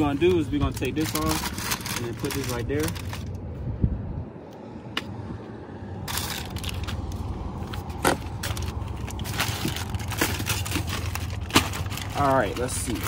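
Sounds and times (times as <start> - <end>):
paper crinkling and rustling: 0.0 - 3.4, 6.1 - 13.0
wind rumble on microphone: 0.0 - 11.4.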